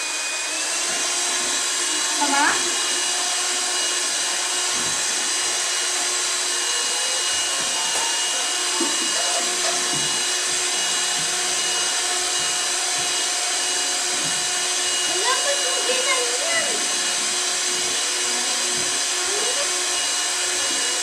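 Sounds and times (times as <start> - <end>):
electric hand mixer whirring: 0.0 - 21.0.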